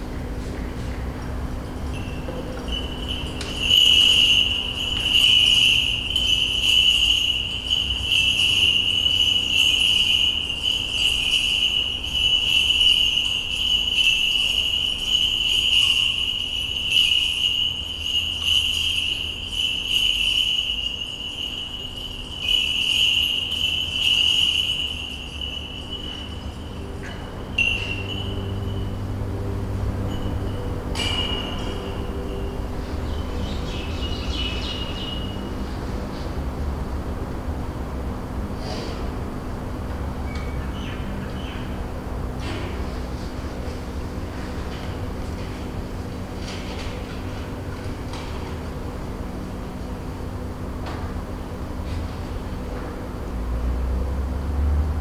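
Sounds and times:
censer bells jingling: 1.7 - 36.3.

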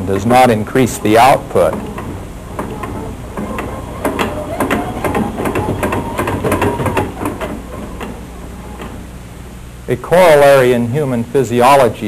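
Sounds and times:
pump mechanism clacking rapidly: 0.0 - 9.2
low steady hum: 0.0 - 12.0.

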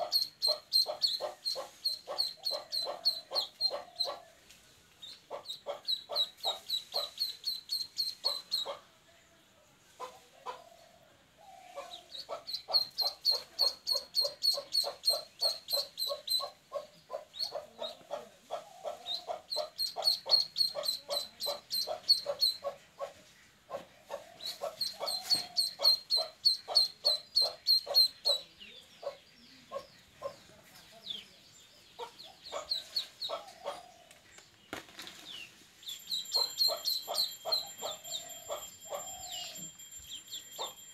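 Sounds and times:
duckling peeping: 0.0 - 4.2, 5.0 - 8.8, 11.8 - 18.2, 18.8 - 22.8, 24.4 - 30.4, 32.0 - 33.8, 35.8 - 39.0.

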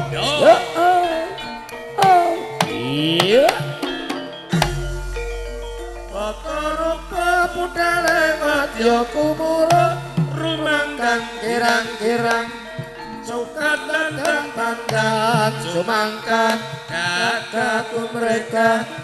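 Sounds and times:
person singing ornamented melody: 0.0 - 3.8, 4.5 - 19.0
hand drum strokes: 2.0 - 17.1
deep low humming tone: 4.6 - 12.8.

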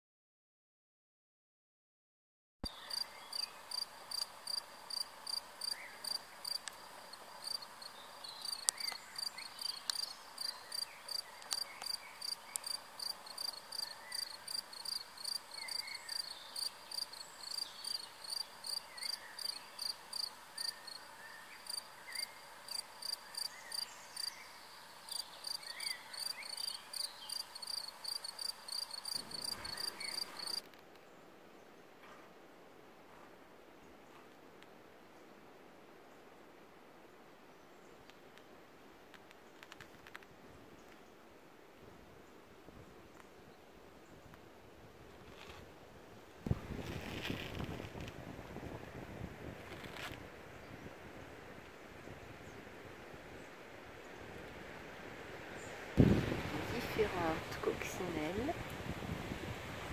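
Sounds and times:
cricket chirping: 2.7 - 30.7.

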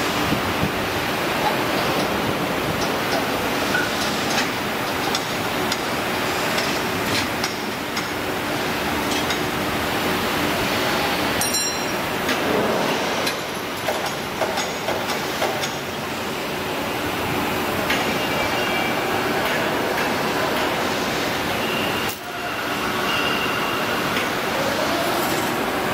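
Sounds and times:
workshop machinery noise: 0.0 - 25.9
metallic clinks and knocks: 11.4 - 12.0.

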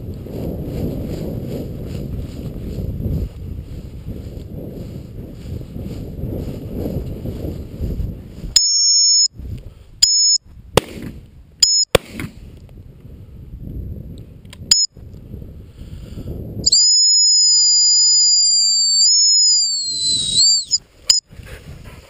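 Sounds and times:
wind buffeting microphone: 0.0 - 8.6, 9.3 - 22.0
sharp clicks: 14.4 - 14.9, 16.7 - 21.2
shrill dog whistle blasts: 16.7 - 20.8.

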